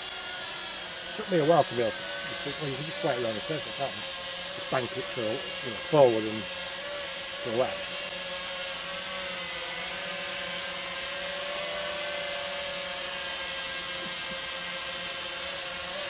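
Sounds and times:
drone propellers buzzing: 0.0s - 16.0s.

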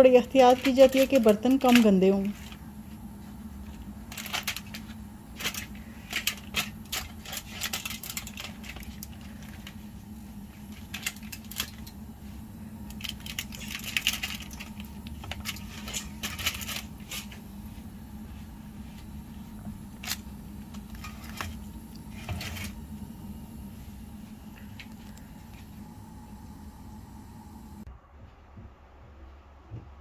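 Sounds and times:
steady low hum: 0.0s - 30.0s
foil crinkling: 0.1s - 2.6s, 3.5s - 12.0s, 12.8s - 17.5s, 19.9s - 22.8s.

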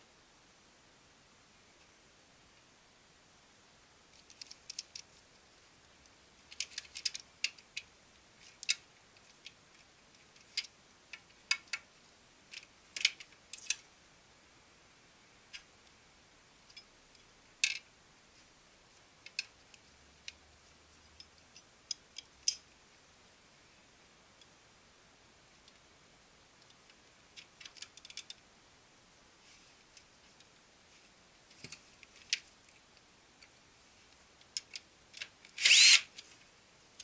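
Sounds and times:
plastic and metal parts clicking: 6.5s - 9.6s, 27.4s - 28.4s.

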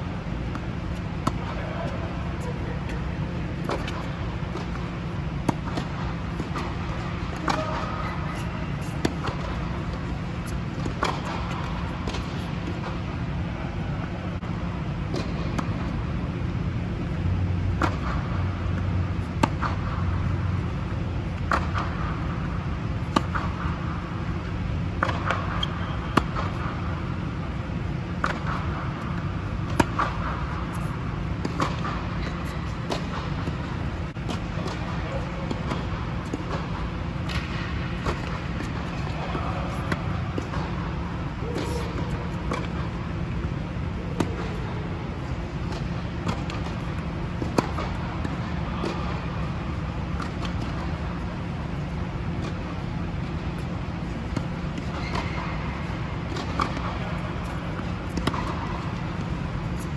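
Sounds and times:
tennis ball struck by rackets: 0.2s - 1.6s, 3.6s - 13.0s, 17.7s - 20.0s, 23.0s - 23.8s, 24.9s - 26.7s, 28.2s - 43.0s, 45.6s - 51.1s, 56.2s - 59.9s
ball bouncing on hard court: 3.6s - 13.0s, 28.2s - 43.3s, 45.6s - 49.5s, 53.6s - 59.9s.

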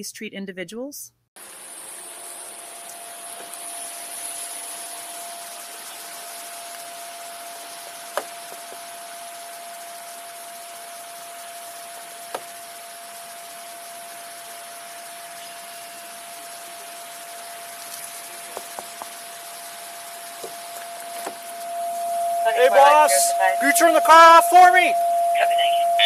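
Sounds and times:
rain hiss on microphone: 1.4s - 25.7s
faint constant whine: 1.4s - 26.0s.

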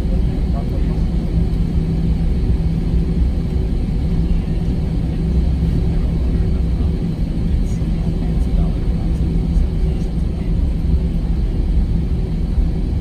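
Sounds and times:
jet engines rumbling: 0.0s - 13.0s
steady low hum: 0.0s - 13.0s.

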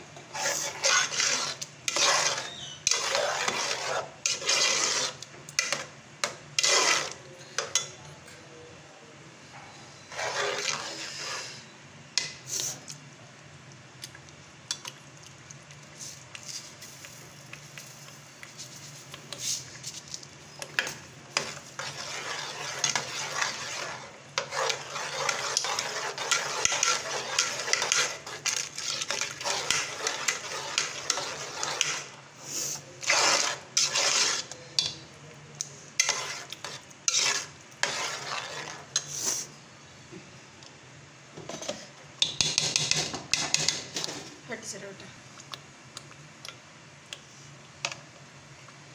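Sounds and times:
metal spoon scraping a metal pot: 0.3s - 5.9s, 6.6s - 7.8s, 10.0s - 11.6s, 20.5s - 32.2s, 33.0s - 35.0s, 36.0s - 39.1s.

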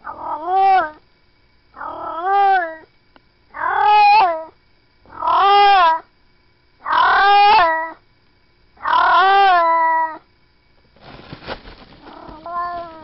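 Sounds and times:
cat meowing: 0.1s - 1.0s, 5.1s - 6.0s, 6.9s - 8.0s, 8.8s - 10.2s, 12.0s - 13.0s.

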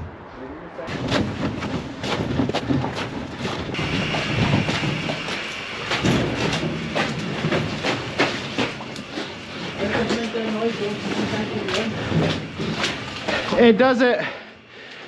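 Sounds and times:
footsteps crunching through snow: 0.9s - 13.7s
low mechanical rumble: 3.3s - 13.7s
high hiss: 3.8s - 7.1s.

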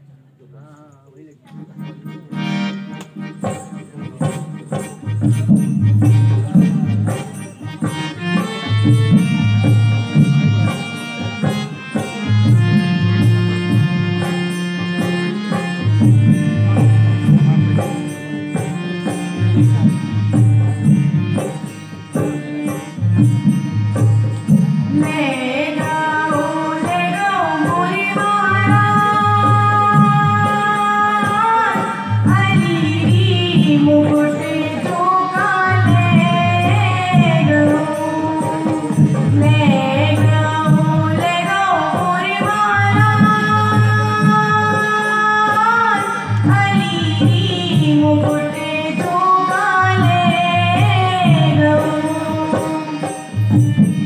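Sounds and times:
dholak drum rhythm: 0.5s - 54.0s
harmonium drone: 1.1s - 54.0s
woman singing: 24.9s - 53.5s.

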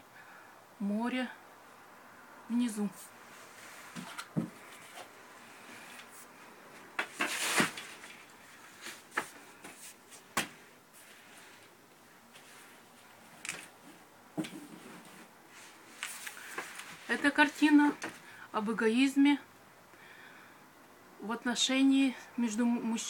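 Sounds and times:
canvas scraping rustles: 7.1s - 10.3s.

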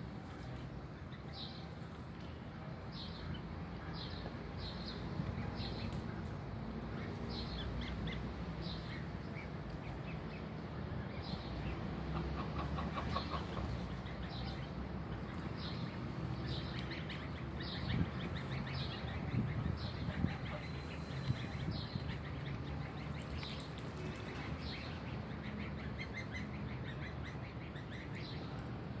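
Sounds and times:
low background noise: 0.0s - 29.0s
goslings peeping: 11.0s - 28.4s.

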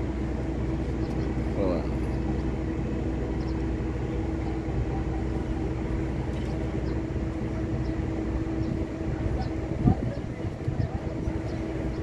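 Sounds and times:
ship engine droning hum: 0.0s - 12.0s.

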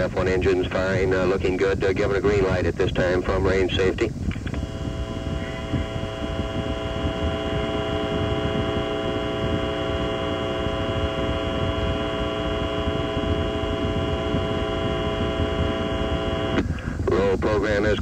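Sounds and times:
rocket engines rumbling: 0.0s - 18.0s.

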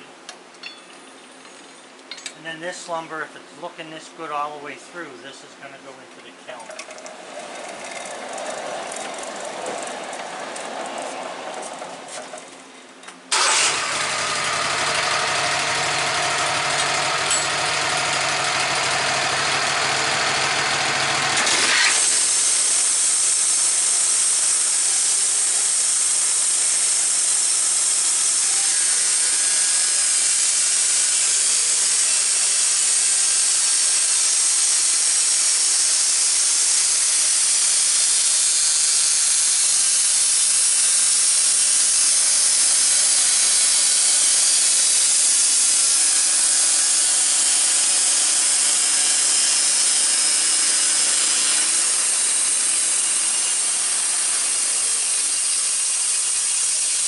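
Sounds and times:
saw blade hissing through wood: 13.3s - 57.0s
sawmill engine hum: 13.3s - 57.0s.

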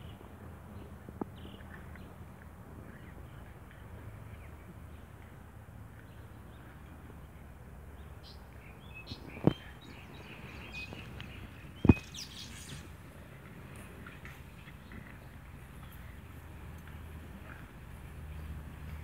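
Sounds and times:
birds chirping: 6.0s - 16.4s.

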